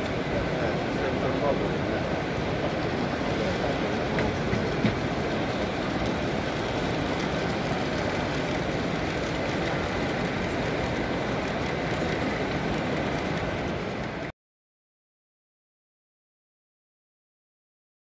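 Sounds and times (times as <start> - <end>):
visitors chatter: 0.0 - 13.7
model trains running: 0.0 - 14.3.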